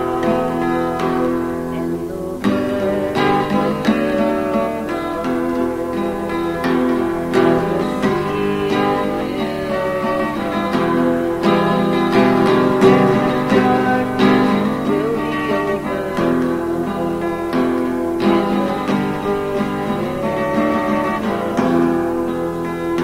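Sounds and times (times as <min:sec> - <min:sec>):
acoustic guitar and mandolin music: 0:00.0 - 0:23.0.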